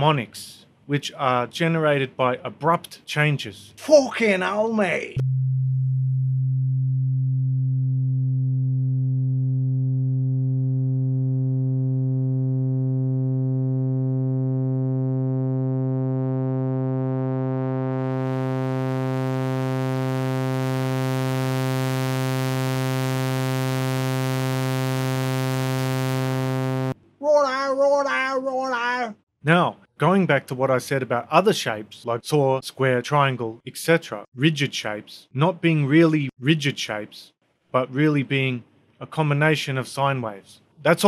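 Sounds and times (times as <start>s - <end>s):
synthesizer low note brightening: 5.2s - 27.0s.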